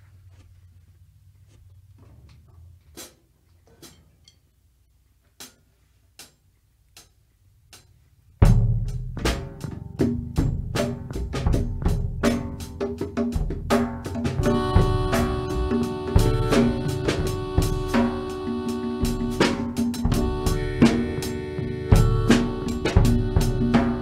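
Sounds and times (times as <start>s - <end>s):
drum hits: 8.4s - 24.0s
rock band playing: 14.3s - 24.0s.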